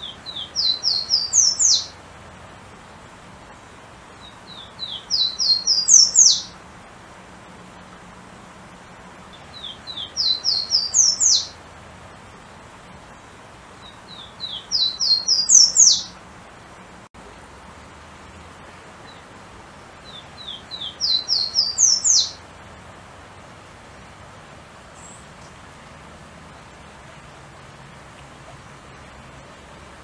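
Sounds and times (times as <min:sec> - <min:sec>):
warbler singing: 0:00.0 - 0:02.0, 0:04.2 - 0:06.6, 0:09.3 - 0:11.6, 0:13.8 - 0:16.2, 0:20.0 - 0:22.4.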